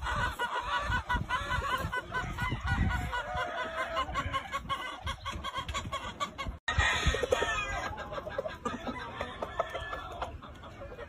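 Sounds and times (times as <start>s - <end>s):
hens and roosters clucking: 0.0s - 11.0s.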